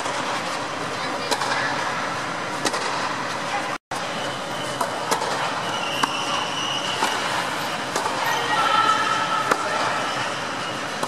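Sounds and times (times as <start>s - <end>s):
tennis balls struck and bouncing: 1.3s - 1.6s, 2.5s - 3.1s, 4.8s - 5.4s, 7.0s - 8.2s, 9.4s - 9.8s.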